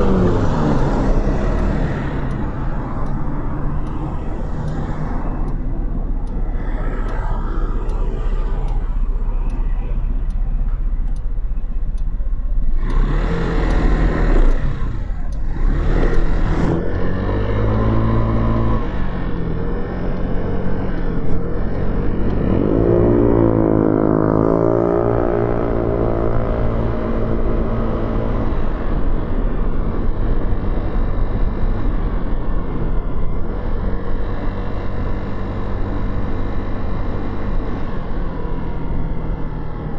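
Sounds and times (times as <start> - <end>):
motorcycle engine accelerating: 12.6 - 39.9.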